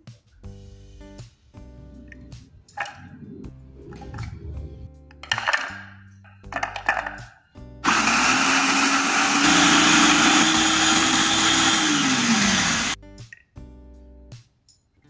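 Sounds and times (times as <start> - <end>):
electric food chopper grinding: 7.8 - 13.0.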